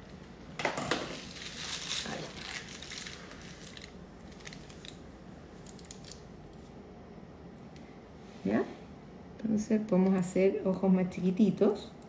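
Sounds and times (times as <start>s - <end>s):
piping bag crinkling: 1.1s - 6.7s.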